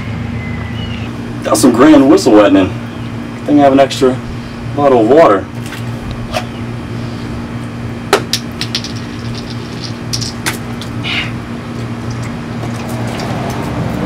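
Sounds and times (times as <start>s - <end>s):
low mechanical hum: 0.0s - 14.0s
water gushing: 9.8s - 14.0s.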